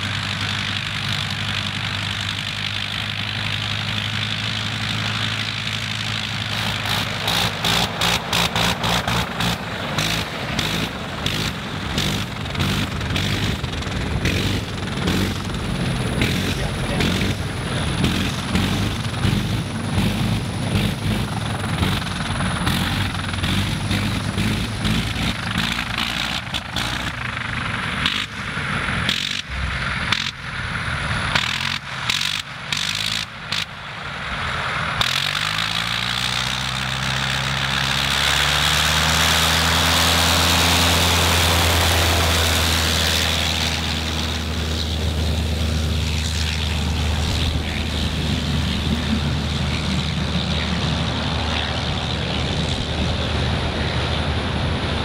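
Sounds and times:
biplane engine running roughly: 0.0 - 55.0.

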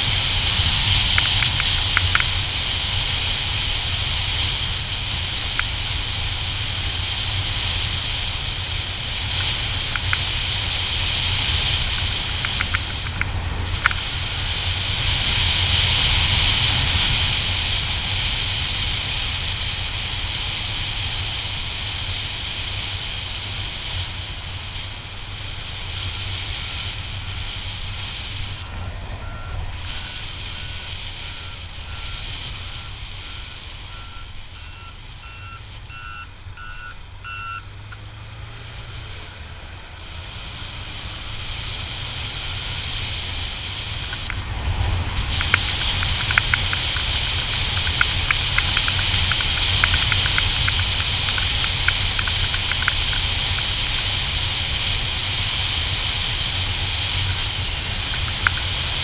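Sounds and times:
motorcycle engine: 0.0 - 59.0
reversing alarm beeping: 28.8 - 38.0
wind buffeting on microphone: 42.9 - 59.0.

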